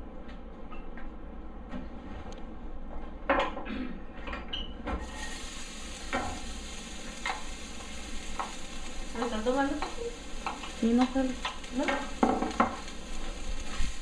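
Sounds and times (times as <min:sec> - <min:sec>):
onion sizzling in oil: 0:05.0 - 0:14.0
stirring strokes in pan: 0:05.0 - 0:14.0
knocks in skillet: 0:09.2 - 0:12.9.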